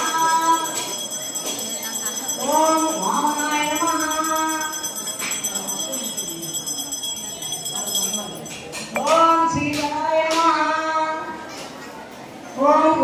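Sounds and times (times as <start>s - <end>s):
bell ringing: 0.0s - 9.4s
sharp jingles: 0.3s - 9.1s.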